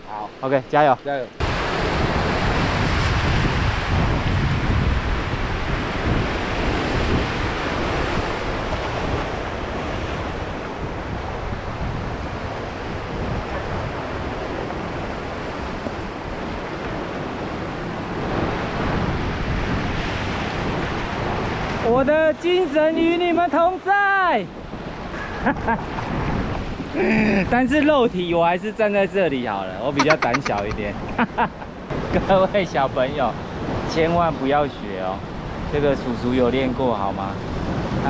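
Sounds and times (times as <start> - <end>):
wind buffeting microphone: 1.4 - 21.9.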